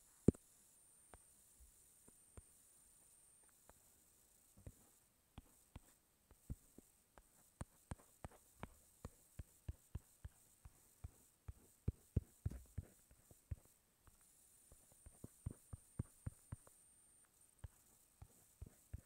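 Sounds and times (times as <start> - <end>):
taps on touchscreen: 15.0 - 16.8.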